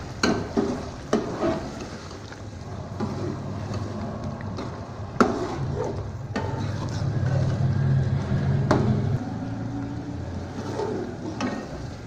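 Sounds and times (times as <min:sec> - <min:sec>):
low steady hum: 0:02.5 - 0:12.0
spoon scraping through gravy: 0:02.7 - 0:08.3.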